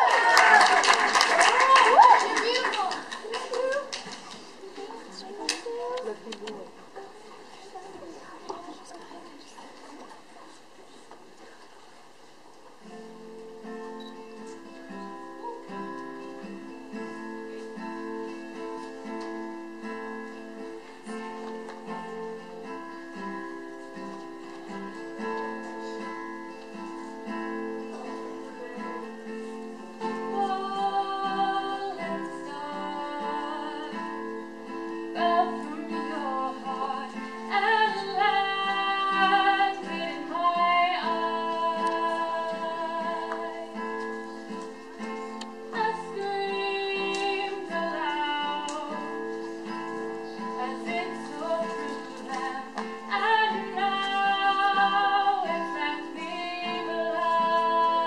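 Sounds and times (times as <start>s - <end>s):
acoustic guitar: 0.0s - 58.0s
woman singing: 30.0s - 44.1s, 45.6s - 49.3s, 50.4s - 58.0s.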